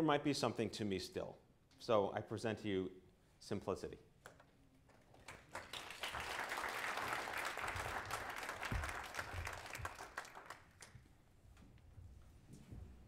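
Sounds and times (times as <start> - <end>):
small audience applauding: 5.1 - 11.0.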